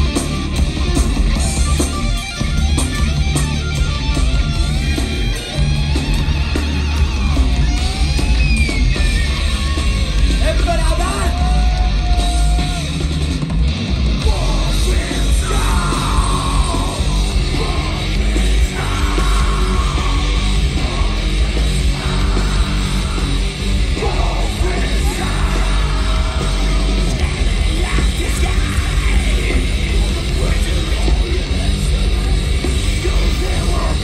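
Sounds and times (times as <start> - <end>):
live metal band playing: 0.0 - 34.0
vocalist shouting: 10.4 - 13.0, 14.3 - 21.2.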